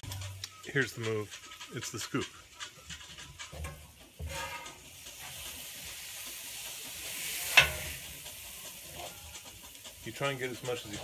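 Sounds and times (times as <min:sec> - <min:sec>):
metal clack on griddle: 0:00.0 - 0:11.0
spatula scraping griddle: 0:00.0 - 0:11.0
meat sizzling on a griddle: 0:03.5 - 0:11.0.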